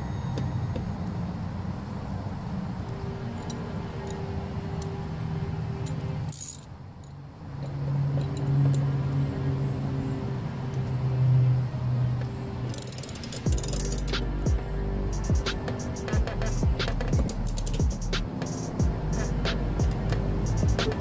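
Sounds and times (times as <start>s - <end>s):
light metallic clinks of bolt: 5.8s - 8.9s, 12.7s - 14.2s, 17.3s - 17.8s
steady low tones: 9.0s - 21.0s.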